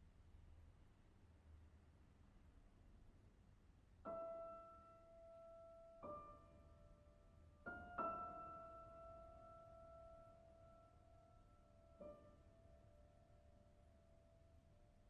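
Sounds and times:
slow quiet piano notes: 0:04.0 - 0:15.0.

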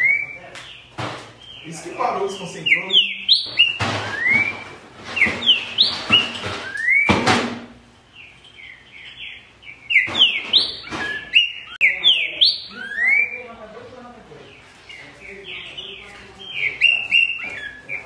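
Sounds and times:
bird singing slurred whistles: 0:02.4 - 0:07.2, 0:08.6 - 0:13.5, 0:16.6 - 0:18.0.

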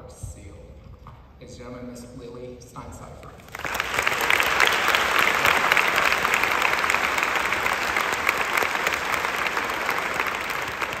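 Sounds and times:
audience applauding: 0:03.5 - 0:11.0.

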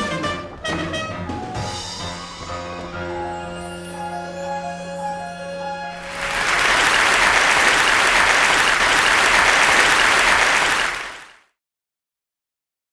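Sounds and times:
audience applauding: 0:05.9 - 0:11.4.

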